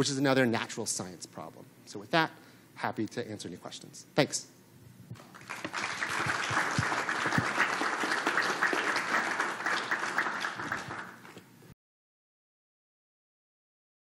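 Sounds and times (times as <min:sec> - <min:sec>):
audience applauding: 0:05.2 - 0:11.4.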